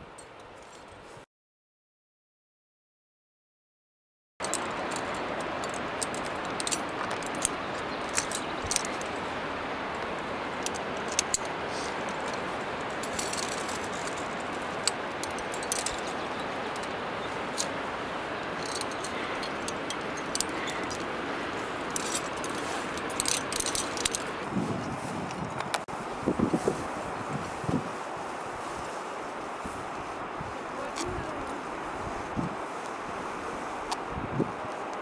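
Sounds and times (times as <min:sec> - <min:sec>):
climbing hardware clinking: 0:04.4 - 0:09.2, 0:09.9 - 0:17.8, 0:18.4 - 0:24.4
steady hiss: 0:04.4 - 0:24.6.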